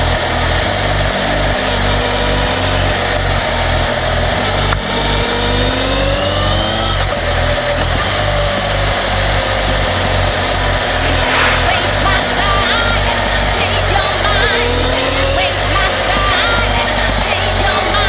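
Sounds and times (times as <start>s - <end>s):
rising synth sweep: 11.0s - 12.6s.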